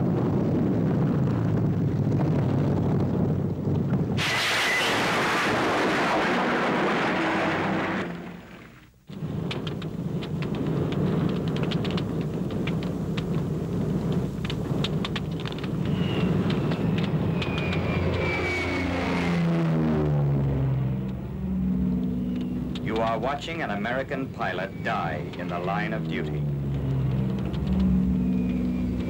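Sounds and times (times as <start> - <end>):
low rumble with crackling pops: 0.0 - 29.0
loud rushing roar: 4.2 - 8.8, 15.5 - 29.0
whine falling in pitch: 4.2 - 8.8, 15.7 - 29.0.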